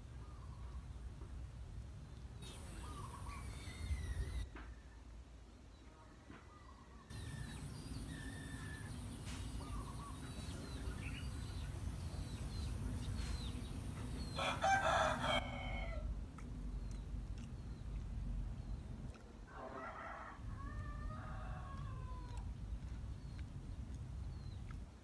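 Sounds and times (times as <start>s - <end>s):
small birds chirping: 0.0s - 5.0s, 6.5s - 19.4s, 21.1s - 25.0s
rooster crowing: 14.3s - 16.1s, 19.5s - 22.4s.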